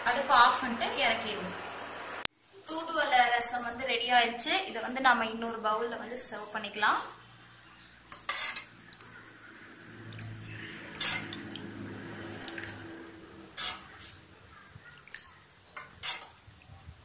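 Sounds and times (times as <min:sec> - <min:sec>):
liquid dripping and splashing: 0:10.0 - 0:13.9, 0:14.8 - 0:16.7.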